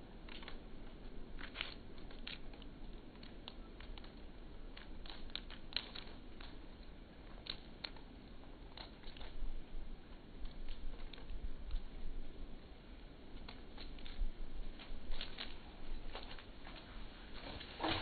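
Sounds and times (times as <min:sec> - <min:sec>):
cat claws scratching bark: 0:00.2 - 0:09.4.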